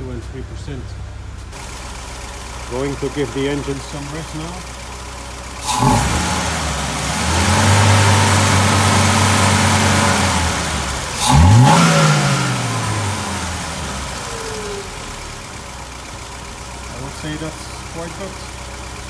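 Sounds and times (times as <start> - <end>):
car engine revving: 5.6 - 18.3.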